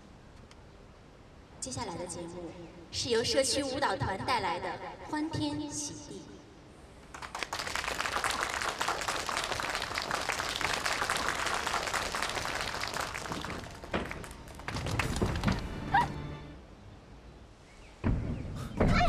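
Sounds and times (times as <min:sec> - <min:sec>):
audience applauding: 0:07.1 - 0:16.2.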